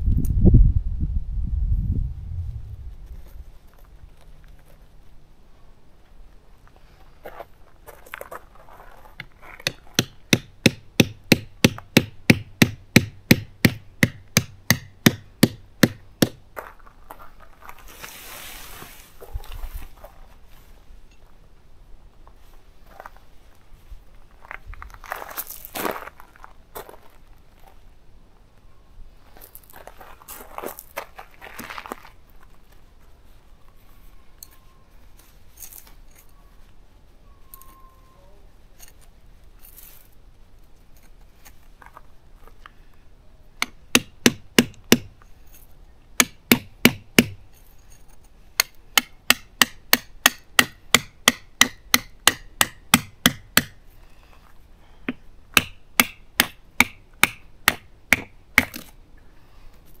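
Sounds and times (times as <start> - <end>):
tent stakes hammered into gravel: 9.2 - 16.4, 43.6 - 45.2, 46.2 - 47.5, 48.5 - 53.8, 55.1 - 59.0.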